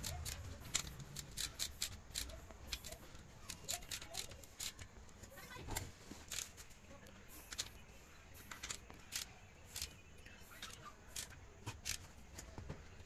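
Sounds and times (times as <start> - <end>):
metallic spanner clicks and scrapes: 0.0 - 4.9.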